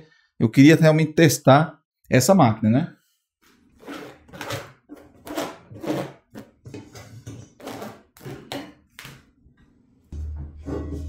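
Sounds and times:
bread dough rubbing and scraping: 3.5 - 8.5.

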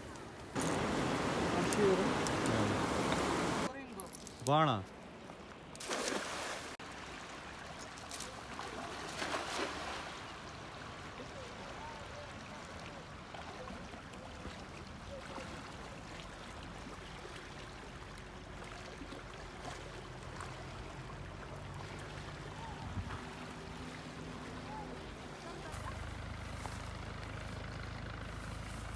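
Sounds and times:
water splashes: 0.0 - 28.9
water running: 0.6 - 3.7.

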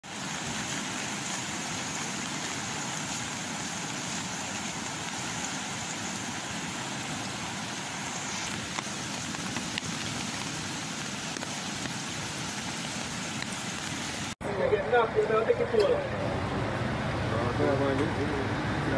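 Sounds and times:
rushing river water: 0.0 - 14.4.

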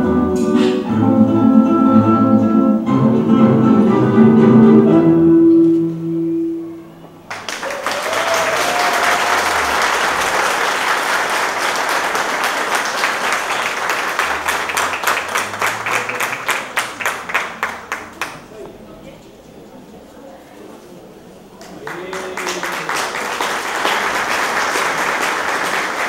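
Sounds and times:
audience applauding: 7.3 - 18.5, 21.6 - 26.0.

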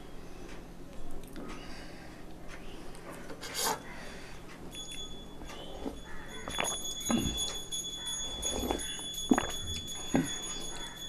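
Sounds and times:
thin high whine: 4.7 - 11.0
chewing and lip smacking: 8.4 - 10.6.

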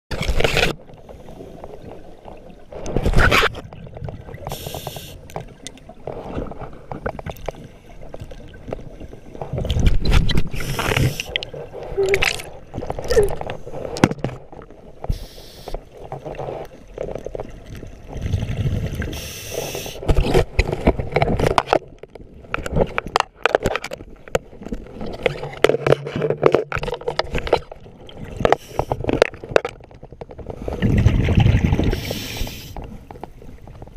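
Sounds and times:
knocks and scrapes: 2.7 - 4.2, 22.6 - 27.8
regulator inhale hiss: 4.5 - 5.3, 10.5 - 11.3, 15.1 - 15.8, 19.1 - 20.0, 31.9 - 32.8
exhaust bubbles gurgling: 17.6 - 19.2, 30.7 - 32.1.

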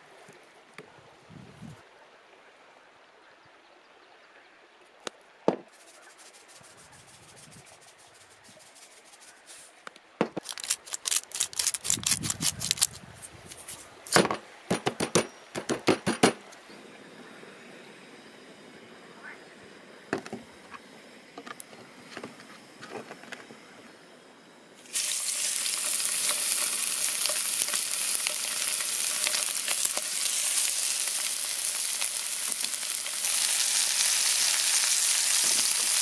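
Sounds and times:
faint sprinkling: 5.7 - 9.8
salt shaker rattling: 10.4 - 13.0.

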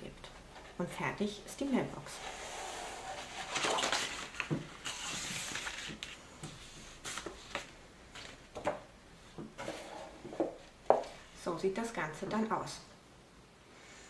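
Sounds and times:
card rustling and sliding: 2.2 - 8.4, 9.6 - 10.5.

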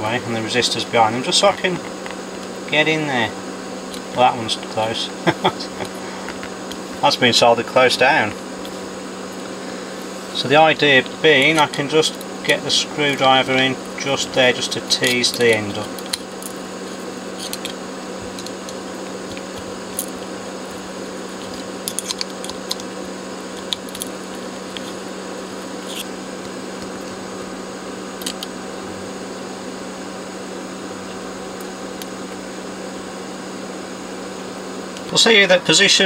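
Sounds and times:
steady background hum: 0.0 - 36.0
screwdriver clicks and scrapes: 17.4 - 20.2, 21.3 - 22.9, 25.8 - 26.1.

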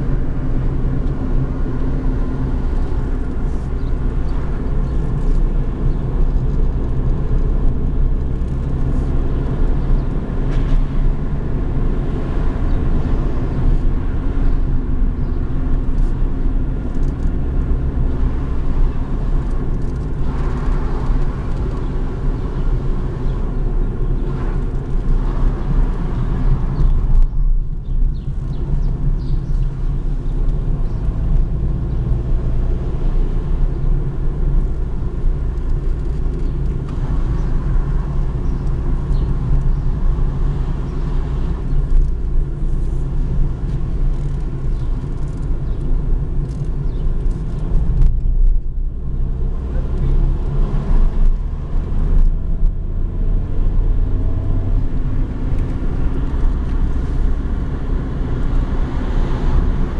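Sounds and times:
car interior engine rumble: 0.0 - 59.9.

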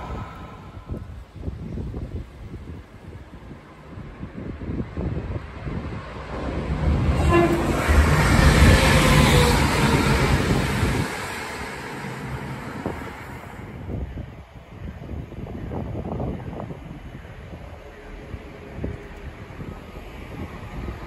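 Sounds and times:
train engine and wheels passing: 0.0 - 21.0
train horn blast: 7.2 - 10.4.

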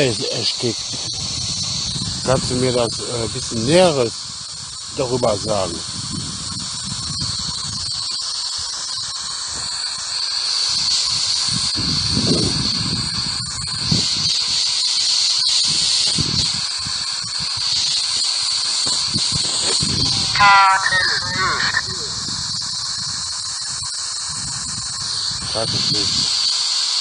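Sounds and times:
radio static hiss: 0.0 - 5.8, 17.7 - 22.4
shrill high tone: 20.0 - 22.2.

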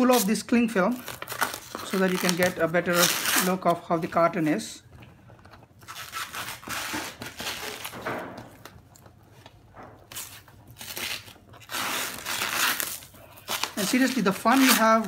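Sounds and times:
cling film crinkling and tearing: 0.0 - 4.6, 5.7 - 8.8, 10.0 - 15.0.

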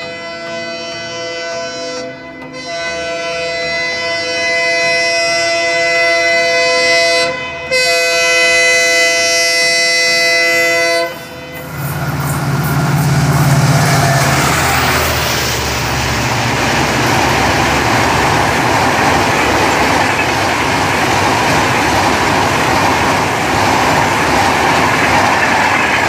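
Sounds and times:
locomotive horn blasts: 0.0 - 16.0
approaching train rumble: 0.0 - 26.0.

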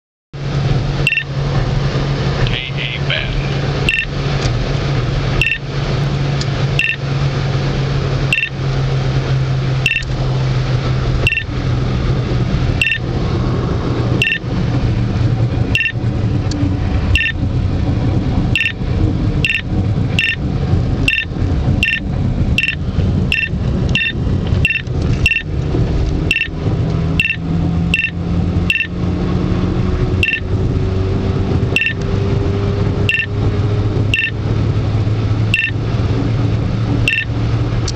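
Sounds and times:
car road noise: 0.4 - 37.9
engine hum: 0.4 - 37.9
radar detector beeping: 1.0 - 1.3, 3.8 - 4.1, 5.4 - 5.6, 6.8 - 7.0, 8.3 - 8.5, 9.8 - 10.1, 11.2 - 11.5, 12.8 - 13.0, 14.2 - 14.4, 15.7 - 16.0, 17.1 - 17.4, 18.5 - 18.8, 19.4 - 19.6, 20.2 - 20.4, 21.1 - 22.0, 22.6 - 25.5, 26.3 - 26.5, 27.2 - 29.0, 30.2 - 30.5, 31.8 - 32.0, 33.1 - 33.4, 34.1 - 34.4, 35.5 - 35.8, 37.1 - 37.3.

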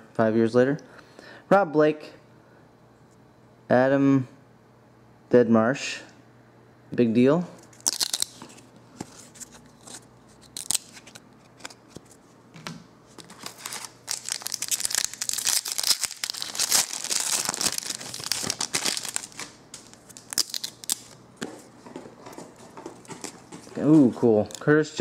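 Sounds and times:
wrapper crinkling: 7.7 - 8.6, 9.2 - 11.8, 13.2 - 21.2.

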